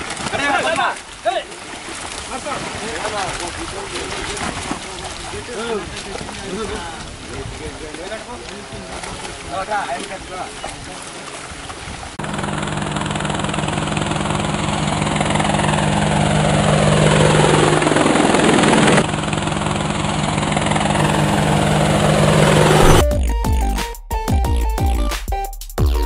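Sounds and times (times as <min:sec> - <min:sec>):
drone rotor buzz: 0:12.2 - 0:23.2
downward whoosh: 0:21.0 - 0:23.1.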